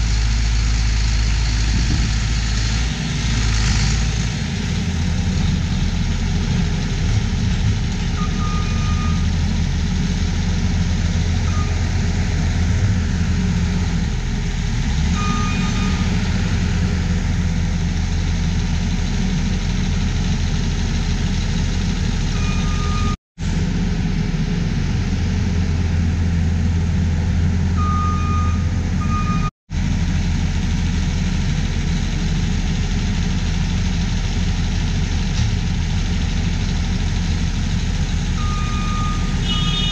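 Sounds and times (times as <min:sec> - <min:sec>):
skid steer loader working: 0:00.0 - 0:39.9
tractor idling: 0:00.0 - 0:39.9
backup alarm short beeps: 0:08.2 - 0:09.2, 0:15.2 - 0:16.2, 0:22.4 - 0:23.2, 0:27.8 - 0:29.5, 0:38.4 - 0:39.9.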